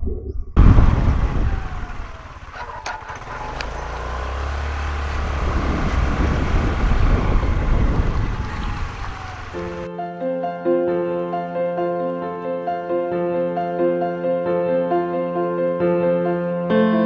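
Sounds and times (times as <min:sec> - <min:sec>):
wind buffeting microphone: 0:00.0 - 0:09.9
scooter engine running: 0:00.6 - 0:09.9
tyres on paved road: 0:00.6 - 0:09.9.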